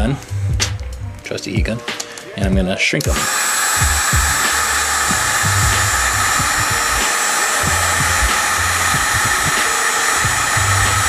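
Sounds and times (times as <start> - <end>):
heat gun blowing hot air: 3.0 - 11.0.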